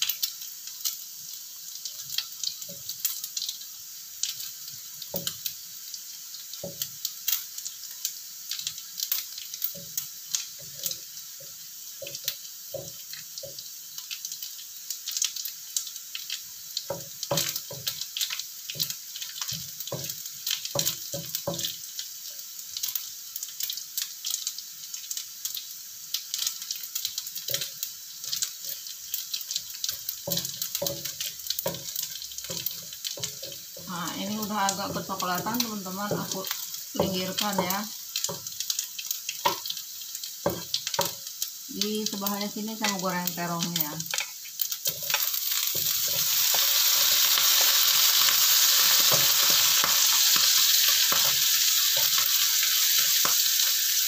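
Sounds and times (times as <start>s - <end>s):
food sizzling and crackling in oil: 0.0s - 54.0s
wooden spatula scraping and knocking pan: 30.2s - 38.4s.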